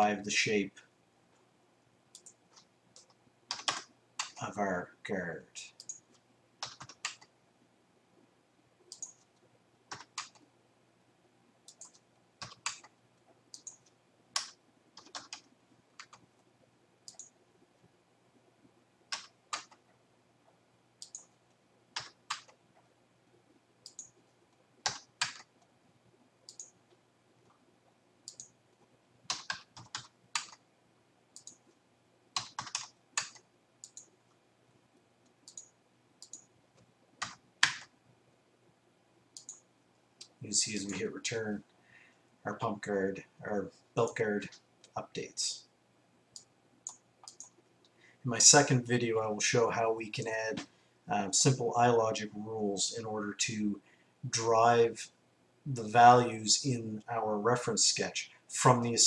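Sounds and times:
mouse clicks: 2.1s - 4.4s, 5.8s - 6.0s, 8.9s - 9.3s, 17.0s - 17.4s, 21.0s - 21.4s, 23.8s - 24.2s, 26.5s - 26.8s, 28.2s - 28.6s, 31.4s - 31.6s, 35.2s - 36.5s, 39.4s - 41.0s, 46.3s - 47.6s.

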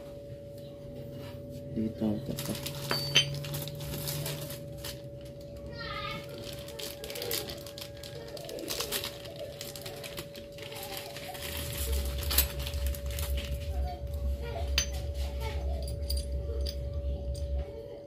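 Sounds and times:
faint hum: 0.0s - 18.0s
metal parts clinking: 2.3s - 5.0s, 8.7s - 13.6s, 14.5s - 17.6s.

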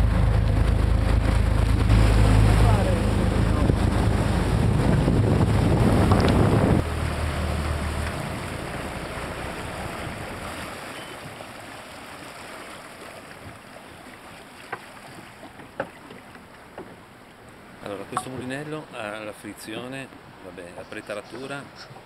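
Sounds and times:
wind on microphone: 0.0s - 9.0s
boat engine rumble: 0.0s - 22.0s
rushing water: 0.0s - 22.0s.

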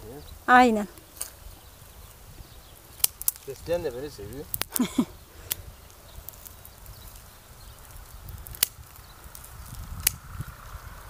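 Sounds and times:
pruning shears snipping: 2.9s - 3.6s, 8.3s - 10.3s.

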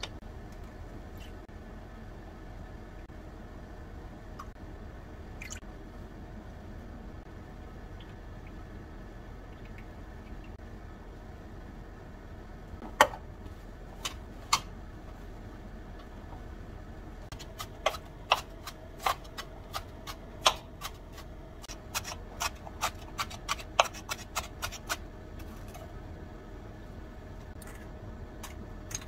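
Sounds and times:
knife chopping on cutting board: 17.4s - 21.3s, 21.9s - 25.0s.

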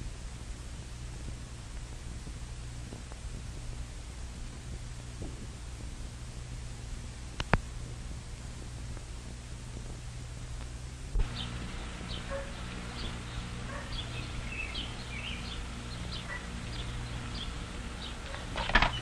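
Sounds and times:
steady low hum: 0.0s - 19.0s
small birds chirping: 11.2s - 19.0s.

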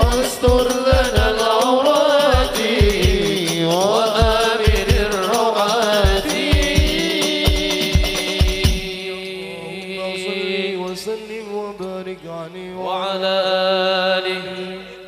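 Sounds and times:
hand drum: 0.0s - 9.0s
chant singing: 0.0s - 15.0s.

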